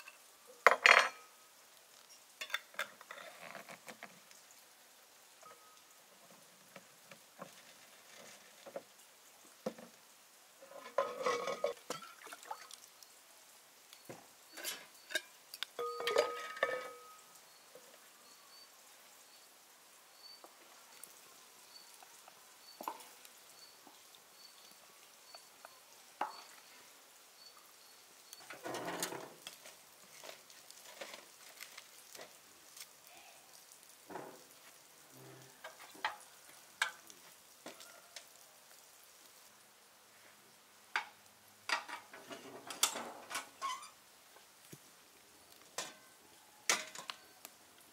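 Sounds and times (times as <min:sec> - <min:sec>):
faint high chirp: 0:05.4 - 0:05.9, 0:15.8 - 0:28.5
spoon stirring in a pot: 0:10.7 - 0:12.2, 0:14.5 - 0:17.2, 0:23.8 - 0:26.8.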